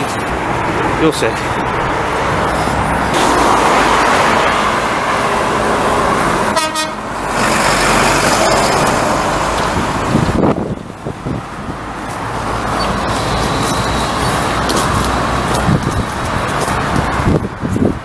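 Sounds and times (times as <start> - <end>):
heavy road traffic rushing: 0.0 - 18.0
vehicle horn toot: 6.5 - 7.1.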